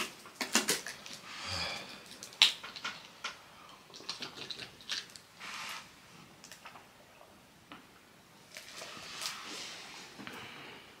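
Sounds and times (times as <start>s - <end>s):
plastic water bottle crackling: 0.0s - 1.3s.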